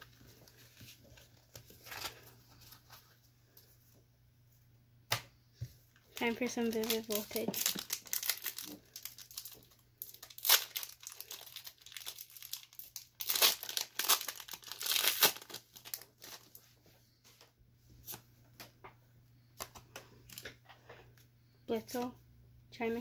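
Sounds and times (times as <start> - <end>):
foil wrapper tearing and crinkling: 6.2 - 16.5.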